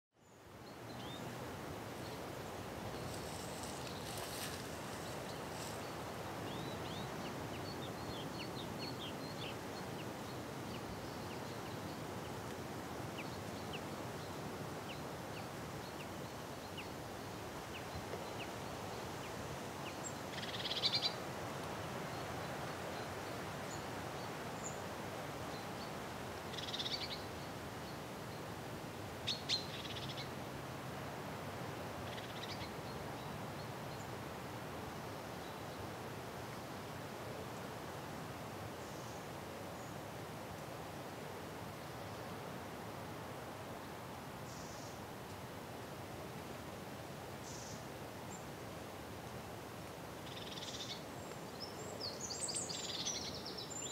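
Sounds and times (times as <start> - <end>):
steady background hiss: 0.2 - 53.9
small birds chirping: 2.9 - 12.4, 50.2 - 53.9.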